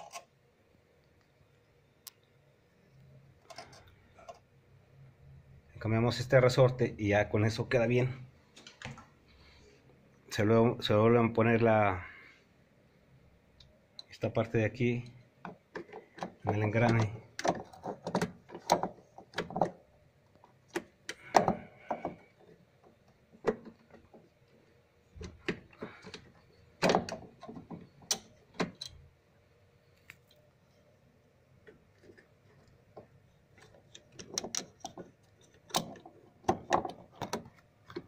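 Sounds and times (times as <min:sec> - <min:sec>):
plastic and metal parts clicking: 0:15.4 - 0:24.6, 0:25.2 - 0:29.1, 0:31.6 - 0:38.0.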